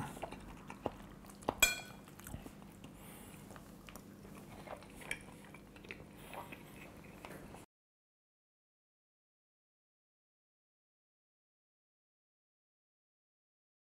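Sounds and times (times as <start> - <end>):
quiet chewing: 0.0 - 7.7
fork clinking on plate: 1.6 - 2.0.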